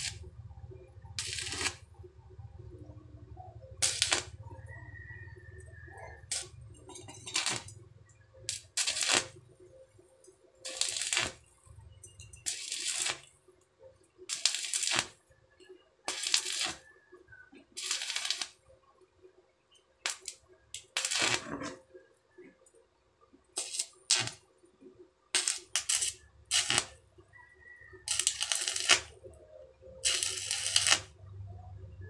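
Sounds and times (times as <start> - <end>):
welding arc crackling: 0.0 - 2.0, 3.7 - 4.7, 6.0 - 9.4, 10.6 - 11.5, 12.3 - 13.3, 14.2 - 15.2, 16.1 - 16.9, 17.7 - 18.6, 20.0 - 21.8, 23.6 - 24.4, 25.3 - 27.0, 27.9 - 31.1.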